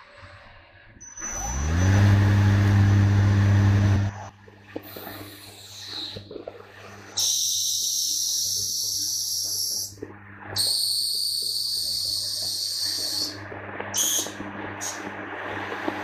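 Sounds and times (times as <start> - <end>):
machine low hum: 0.0 - 7.2, 9.9 - 16.0
cutting tool hissing: 1.2 - 6.2.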